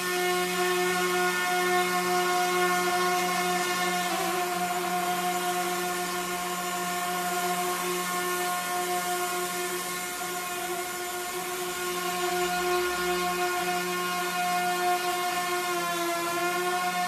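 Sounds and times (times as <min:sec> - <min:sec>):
electric motor and propeller whine: 0:00.0 - 0:17.0.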